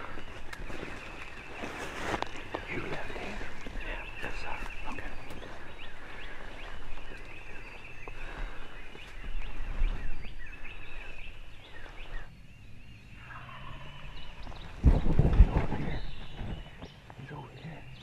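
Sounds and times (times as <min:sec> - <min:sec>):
turkey gobbling: 0:13.2 - 0:14.0.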